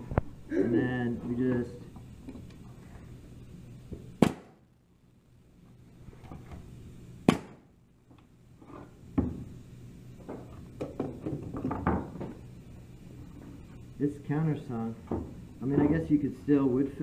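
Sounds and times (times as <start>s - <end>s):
nail gun firing: 4.2s - 4.6s.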